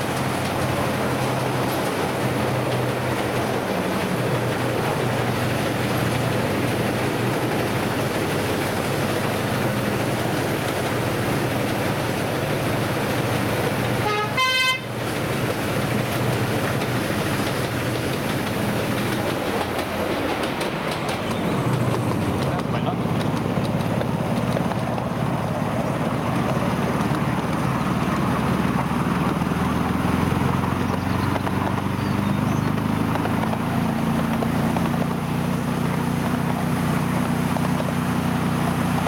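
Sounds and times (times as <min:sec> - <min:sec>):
diesel locomotive engine hum: 0:00.0 - 0:39.0
wheels rumbling on rails: 0:00.0 - 0:39.0
train horn toot: 0:14.0 - 0:15.0.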